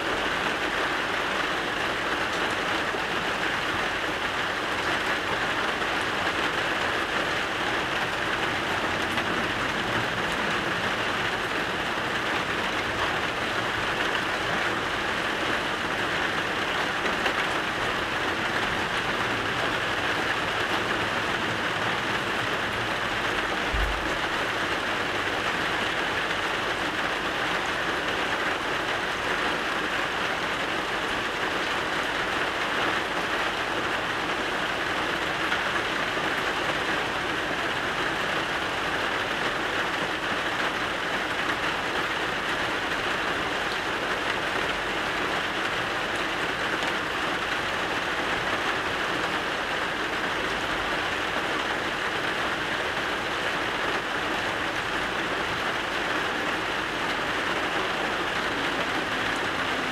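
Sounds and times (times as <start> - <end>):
steady rain falling: 0.0 - 59.9
brief low thump: 23.7 - 24.0.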